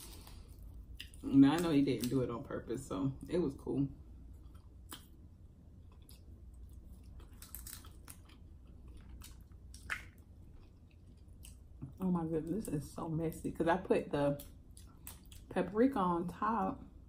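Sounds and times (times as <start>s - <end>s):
chewing: 0.0s - 1.2s, 5.8s - 12.0s
crab shell cracking: 7.0s - 10.3s.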